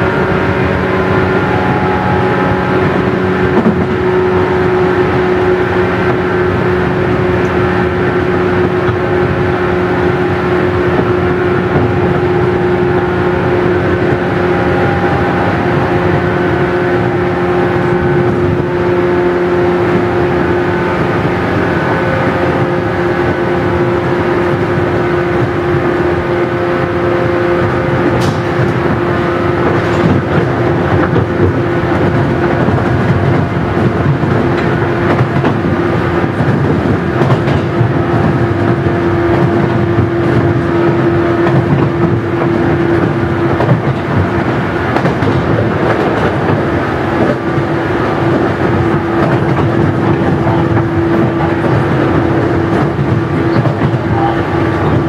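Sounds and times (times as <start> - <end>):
train motor hum: 0.0 - 55.0
train rolling noise: 0.0 - 55.0.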